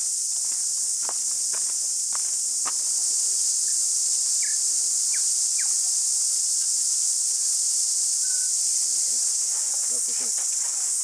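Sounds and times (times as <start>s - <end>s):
insect chorus: 0.0s - 11.0s.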